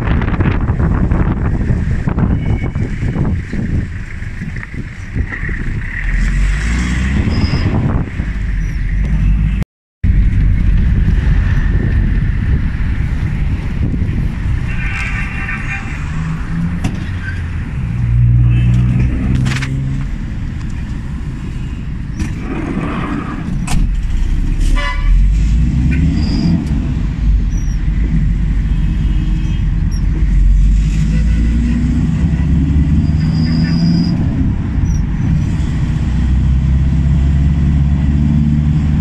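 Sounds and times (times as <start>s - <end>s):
engine and road rumble: 0.0s - 39.0s
car horns tooting: 2.2s - 3.3s, 14.6s - 16.5s, 24.7s - 25.3s, 30.9s - 32.7s.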